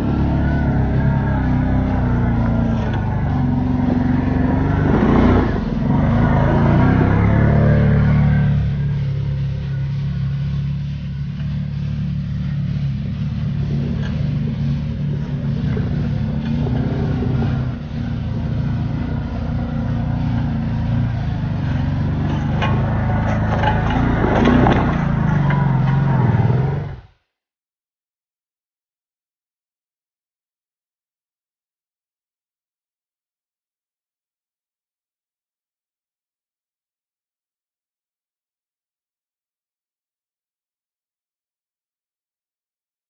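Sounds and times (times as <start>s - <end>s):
tyres spinning in loose dirt: 0.0s - 27.0s
utility vehicle engines under load: 0.0s - 27.1s
v-twin engine passing close: 0.0s - 27.1s.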